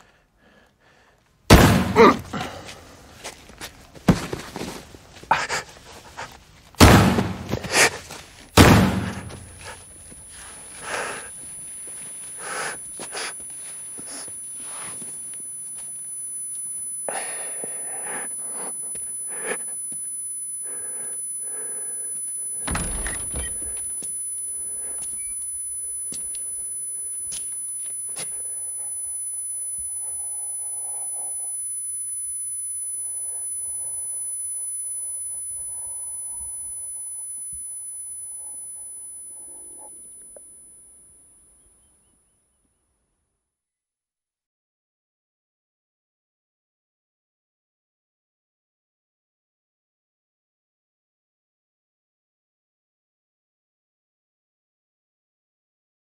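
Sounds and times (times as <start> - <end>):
heavy thud: 1.5 - 2.3, 6.8 - 7.8, 8.6 - 9.6
gunshots: 1.5 - 2.4, 6.8 - 9.7
high thin ringing tones: 8.9 - 42.2.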